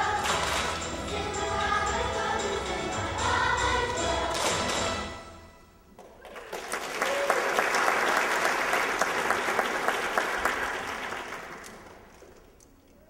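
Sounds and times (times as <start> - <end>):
audience applauding: 6.0 - 12.6.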